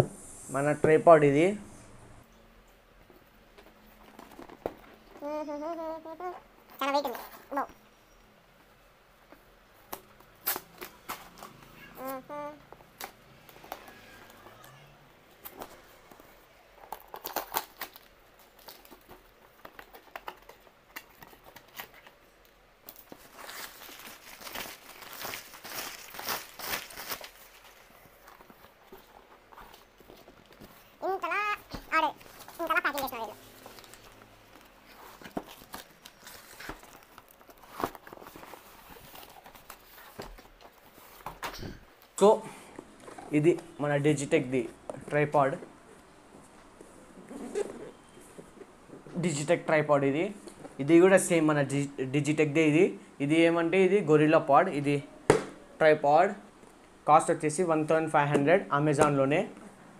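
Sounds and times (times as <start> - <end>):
cardboard crinkling and tearing: 16.8 - 22.2, 22.9 - 30.9, 31.7 - 41.4.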